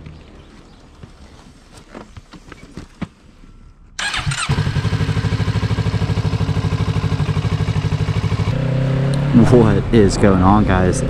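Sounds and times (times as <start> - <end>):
motorcycle engine starting and idling: 4.0 - 9.8.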